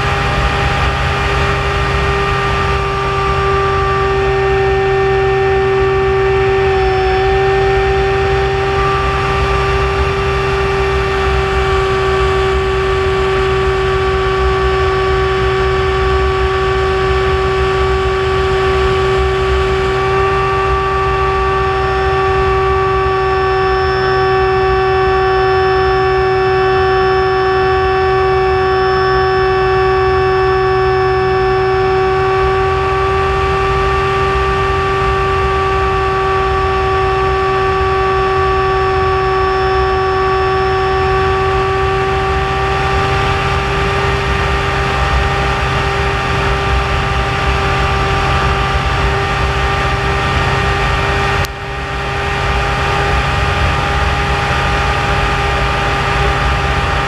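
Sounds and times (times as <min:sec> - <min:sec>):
propeller engine drone: 0:00.0 - 0:57.0.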